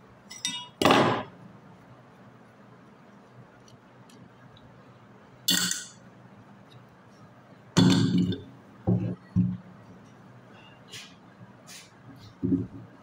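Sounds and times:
metallic clink: 0:00.3 - 0:00.8, 0:05.5 - 0:06.0.

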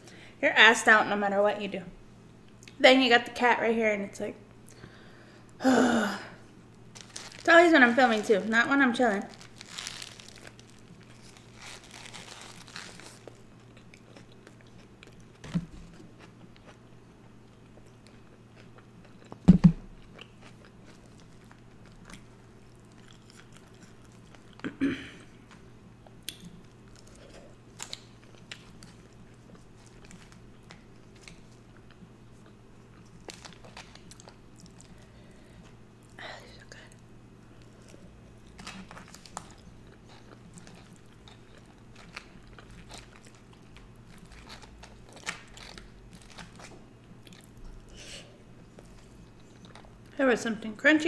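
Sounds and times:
faint steady hum: 0:00.0 - 0:51.0
person chewing food: 0:09.3 - 0:24.7, 0:37.0 - 0:50.1.

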